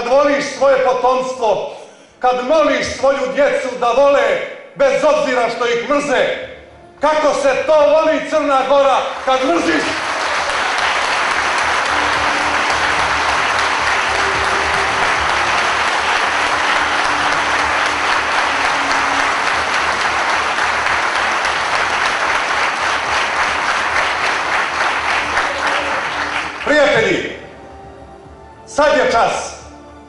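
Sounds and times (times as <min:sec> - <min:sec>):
audience applauding: 0:08.8 - 0:27.4.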